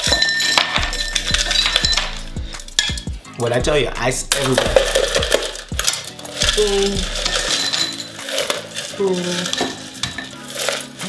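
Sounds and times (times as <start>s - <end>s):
ice cubes clinking in glasses: 0.0s - 2.2s, 4.4s - 11.0s.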